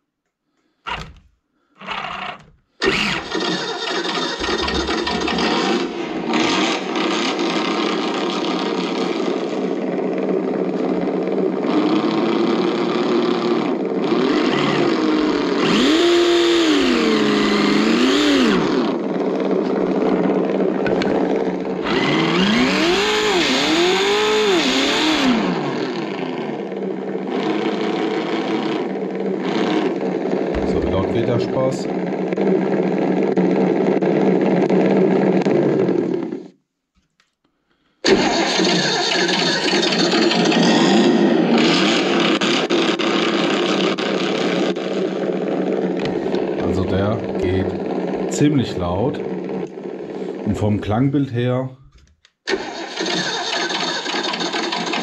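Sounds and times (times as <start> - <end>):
simulated engine from loudspeaker: 2.4 - 33.0, 46.0 - 51.8
short sounds from loudspeaker: 30.6 - 31.9.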